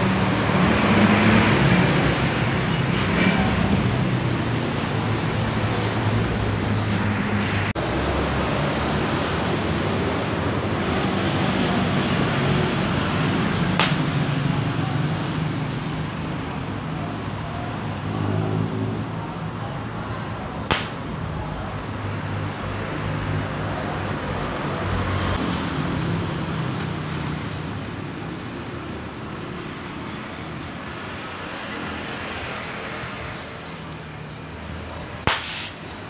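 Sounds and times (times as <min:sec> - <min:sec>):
sharp cracks: 0:13.7 - 0:14.3, 0:20.7 - 0:21.1, 0:35.2 - 0:35.9
cutting torch hissing: 0:35.3 - 0:35.8.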